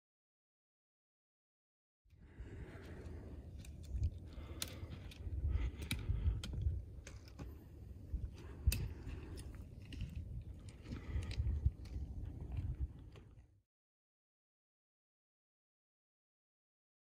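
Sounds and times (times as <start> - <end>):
trekking poles tapping stone: 3.5 - 13.3.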